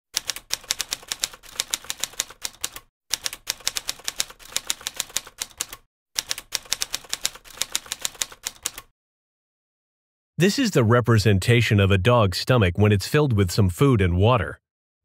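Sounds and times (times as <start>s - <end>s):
typewriter keystrokes: 0.2s - 8.9s.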